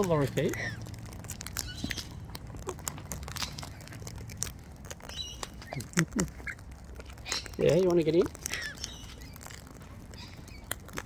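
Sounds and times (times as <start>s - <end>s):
beaks cracking seed: 0.0s - 11.0s
bird chirps: 1.6s - 2.2s, 5.0s - 6.6s, 7.2s - 7.7s, 8.6s - 10.8s.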